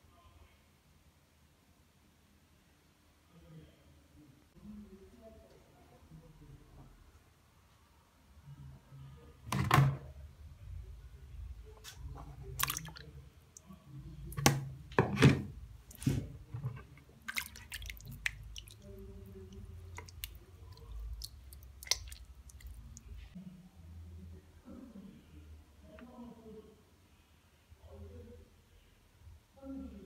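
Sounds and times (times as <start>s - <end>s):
dough squelching and splashing in water: 12.0s - 14.8s, 15.8s - 23.3s.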